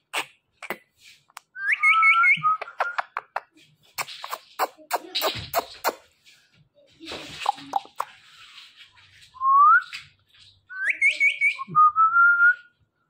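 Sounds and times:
kissing smacks: 0:00.0 - 0:01.5, 0:02.5 - 0:06.1, 0:07.3 - 0:08.2.

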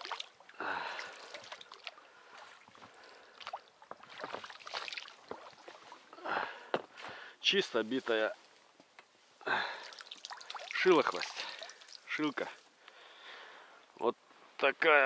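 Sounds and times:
small water sounds: 0:00.0 - 0:06.7, 0:09.4 - 0:13.6.

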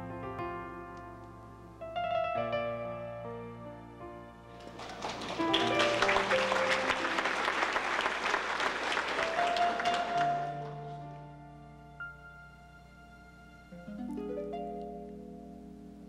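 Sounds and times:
audience applause: 0:04.5 - 0:11.0
soft keyboard: 0:09.2 - 0:16.0.

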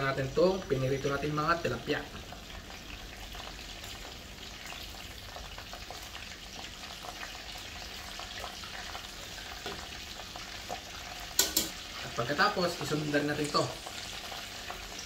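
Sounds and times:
broth bubbling and sizzling: 0:00.0 - 0:15.0.

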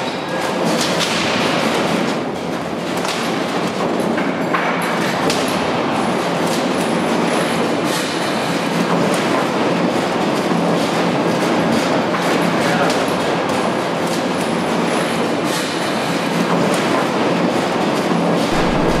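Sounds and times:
shake table rumble and rattle: 0:18.4 - 0:19.0.

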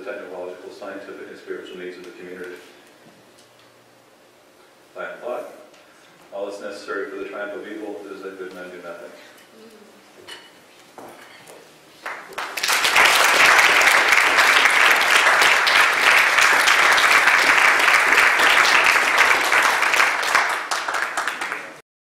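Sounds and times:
audience applauding: 0:12.0 - 0:21.8.

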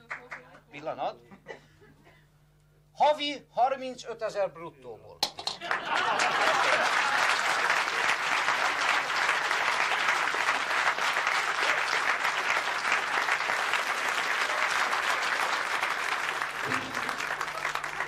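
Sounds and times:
audience applauding: 0:05.4 - 0:18.0.

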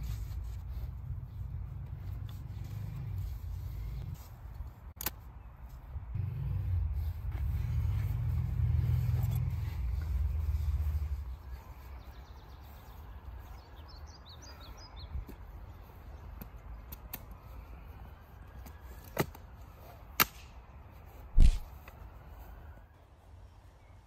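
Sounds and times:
bird chirping: 0:10.3 - 0:16.7
low wind rumble: 0:20.6 - 0:23.7.

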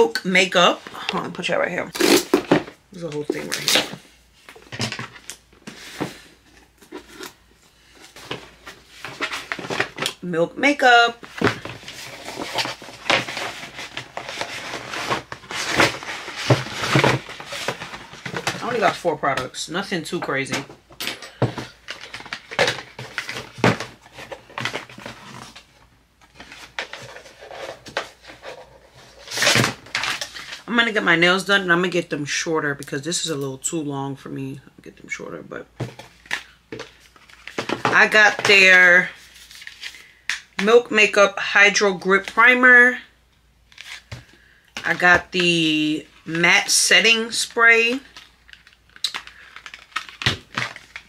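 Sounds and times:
packaging rustling: 0:02.0 - 0:10.2, 0:11.2 - 0:19.3, 0:20.6 - 0:30.7, 0:35.8 - 0:40.4, 0:43.7 - 0:45.5, 0:47.8 - 0:51.0.

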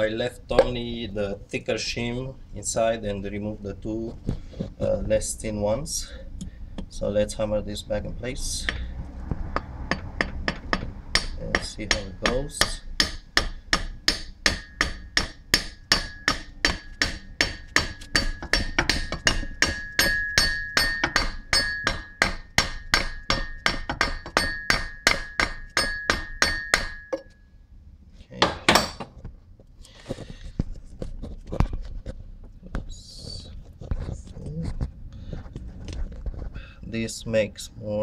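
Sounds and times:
hammer tapping metal: 0:09.5 - 0:27.4.

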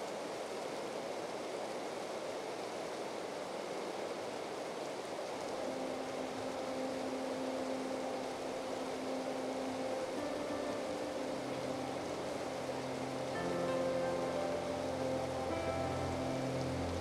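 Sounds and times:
running water rushing: 0:00.0 - 0:17.0
sustained music notes: 0:05.6 - 0:17.0.

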